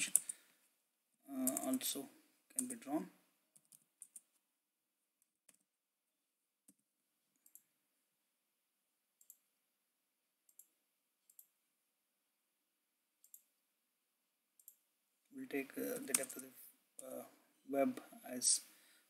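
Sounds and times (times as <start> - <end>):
mouse and keyboard clicks: 1.4 - 1.8, 15.8 - 16.5.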